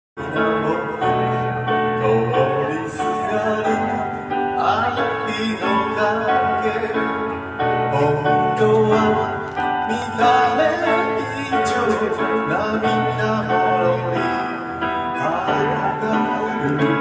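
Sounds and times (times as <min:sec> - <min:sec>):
instrumental accompaniment: 0:00.2 - 0:17.0
person singing into a microphone: 0:00.2 - 0:17.0.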